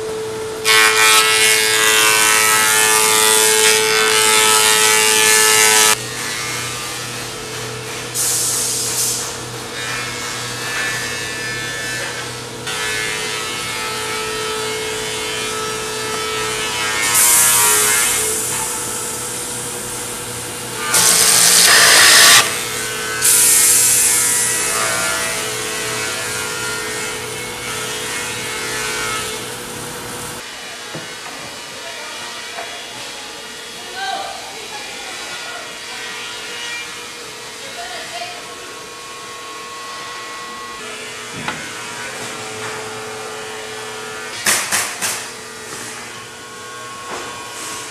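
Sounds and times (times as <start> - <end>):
woodworking machinery humming: 0.0 - 31.1
loud machining bursts: 20.8 - 26.2.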